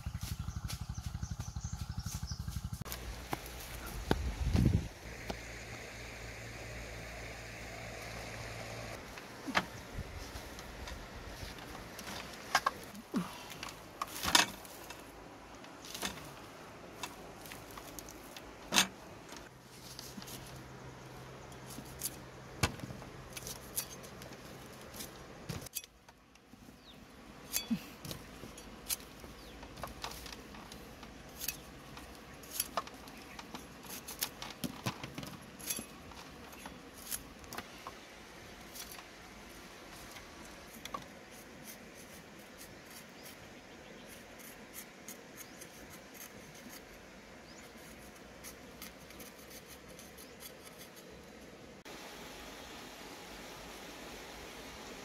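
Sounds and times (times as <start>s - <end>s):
cleaver scraping carrots: 27.4s - 37.8s, 39.9s - 51.4s.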